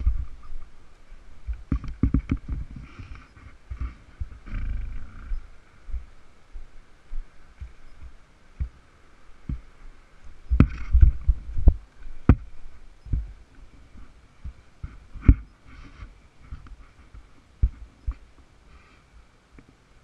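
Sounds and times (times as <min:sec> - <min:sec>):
low thumps and knocks: 0:00.0 - 0:00.7, 0:01.4 - 0:06.1, 0:10.5 - 0:12.5, 0:13.1 - 0:15.5
faint high drone: 0:02.7 - 0:20.0.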